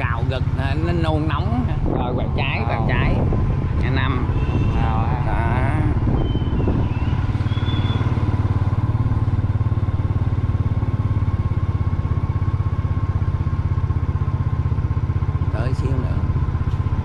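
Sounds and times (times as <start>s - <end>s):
scooter engine running: 0.0s - 17.0s
short high chirp: 6.2s - 8.2s.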